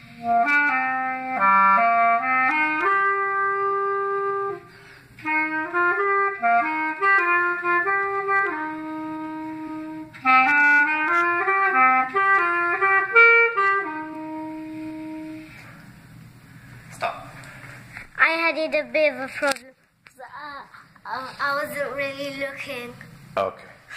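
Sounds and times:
solo clarinet melody: 0:00.0 - 0:15.7.

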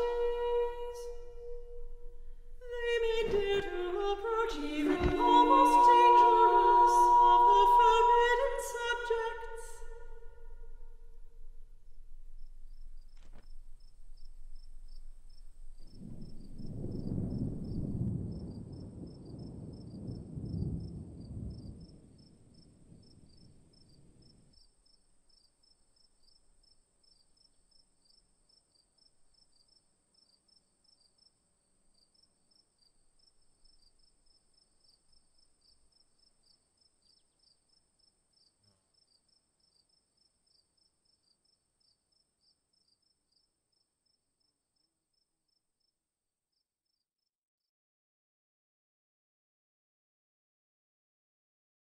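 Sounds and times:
low rumble: 0:00.0 - 0:23.9
insects chirping: 0:00.0 - 0:45.9
thin high whine: 0:04.5 - 0:11.8.

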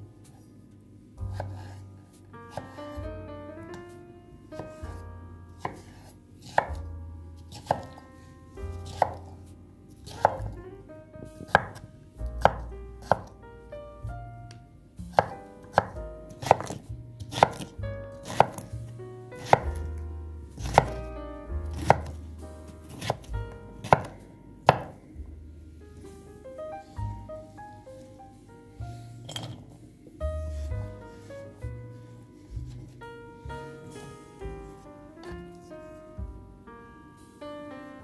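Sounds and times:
background music: 0:00.0 - 0:38.0
knife chopping on wooden board: 0:05.6 - 0:06.8, 0:07.5 - 0:08.0, 0:08.8 - 0:09.3, 0:10.1 - 0:10.4, 0:11.5 - 0:11.8, 0:12.4 - 0:13.3, 0:15.1 - 0:18.7, 0:19.4 - 0:19.9, 0:20.6 - 0:21.0, 0:21.7 - 0:22.2, 0:22.9 - 0:25.0.

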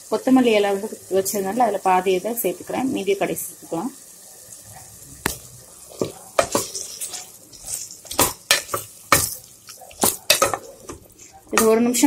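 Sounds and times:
faint sizzle: 0:00.0 - 0:12.0
spoon clinking against pot: 0:06.0 - 0:11.8.

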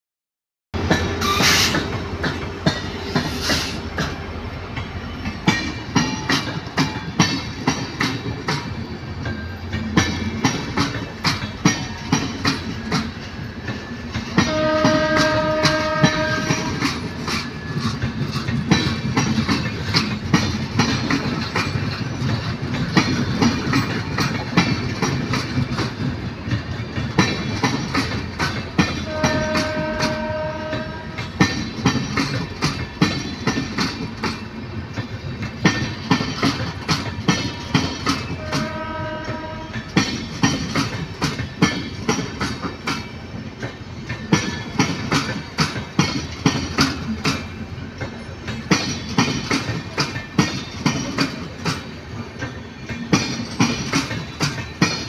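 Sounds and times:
train rumble: 0:00.8 - 0:55.0
train wheels clicking on rail joints: 0:00.8 - 0:55.0
train horn blasts: 0:14.4 - 0:17.0, 0:29.0 - 0:31.4, 0:38.3 - 0:39.9.

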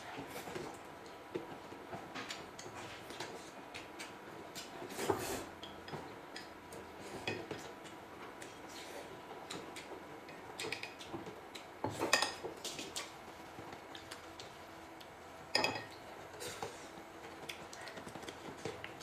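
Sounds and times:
cutlery and dishes clinking: 0:15.5 - 0:16.0.

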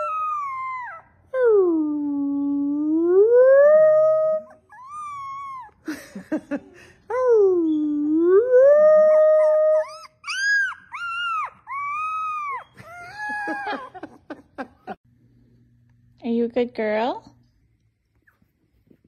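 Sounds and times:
puppy howling: 0:00.0 - 0:01.8, 0:02.9 - 0:05.8, 0:07.2 - 0:14.1.

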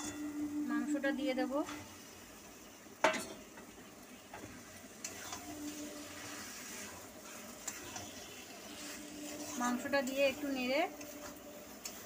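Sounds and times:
metal spatula turning chicken: 0:04.3 - 0:12.0.

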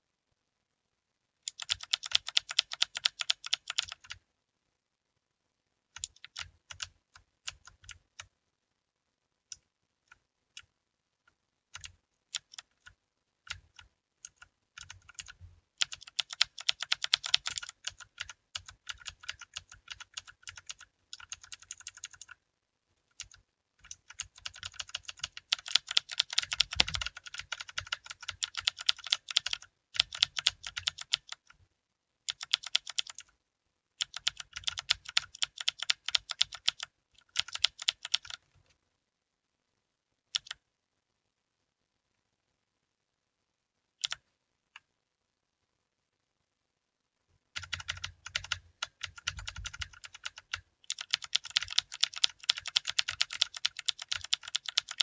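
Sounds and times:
mechanical keyboard typing: 0:01.5 - 0:04.2, 0:06.0 - 0:08.3, 0:11.7 - 0:22.4, 0:23.1 - 0:31.6, 0:32.3 - 0:33.3, 0:34.0 - 0:38.4, 0:40.3 - 0:40.6, 0:44.0 - 0:44.2, 0:47.6 - 0:55.0.

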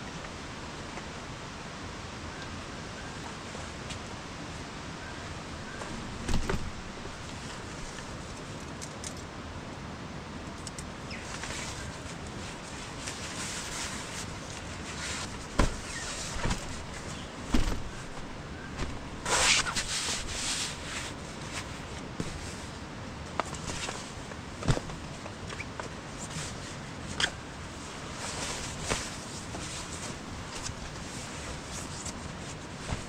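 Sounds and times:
steady background hiss: 0:00.0 - 0:33.0
rustling: 0:11.1 - 0:33.0.

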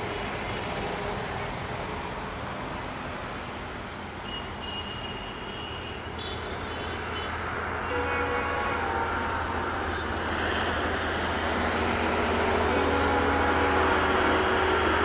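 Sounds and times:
diesel locomotive engine rumble: 0:00.0 - 0:15.0
locomotive whining tones: 0:07.8 - 0:15.0.

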